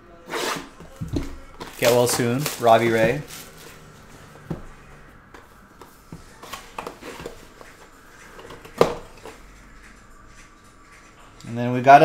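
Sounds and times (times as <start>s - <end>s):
cardboard box rustling: 0.9s - 3.8s.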